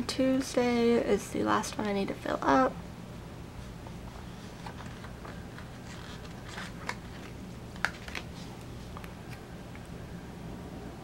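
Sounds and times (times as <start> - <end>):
paper sticker sheet rustling: 4.2 - 9.0.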